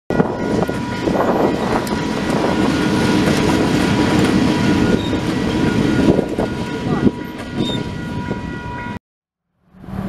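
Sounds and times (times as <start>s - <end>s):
diesel locomotive engine rumble: 0.1s - 9.0s, 9.6s - 10.0s.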